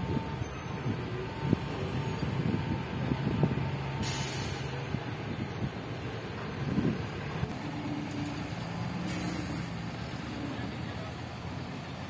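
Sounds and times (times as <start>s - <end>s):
heavy vehicle engine drone: 0.0s - 12.0s.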